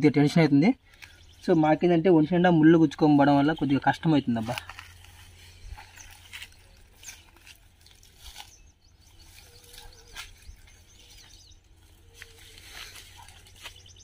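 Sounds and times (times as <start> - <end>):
faint bird chirps: 0.8 - 14.0
footsteps through dry leaves: 4.4 - 14.0.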